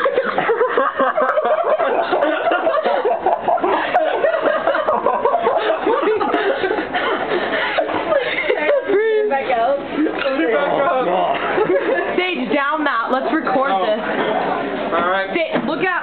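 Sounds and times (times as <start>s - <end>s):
people laughing: 0.0s - 12.4s.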